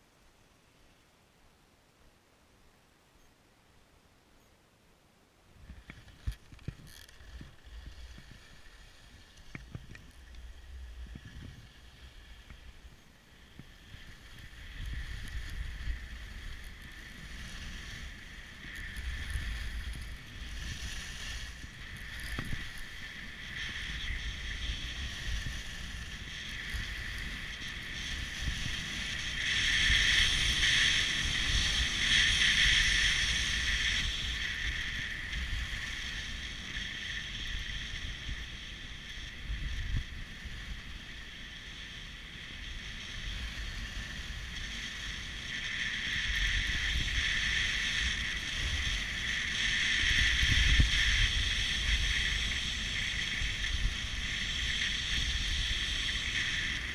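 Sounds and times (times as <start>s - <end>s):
wind buffeting microphone: 5.6s - 36.9s, 43.3s - 56.9s
skis scraping over snow: 5.6s - 56.9s.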